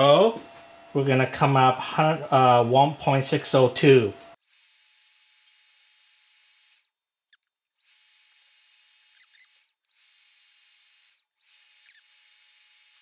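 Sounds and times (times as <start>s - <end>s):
mill motor high-pitched whine: 3.6s - 13.0s.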